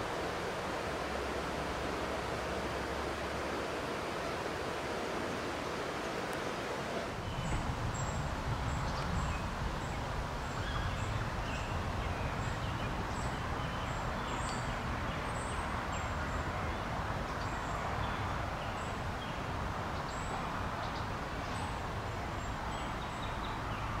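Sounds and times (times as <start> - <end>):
low outdoor rumble: 7.2 - 13.2.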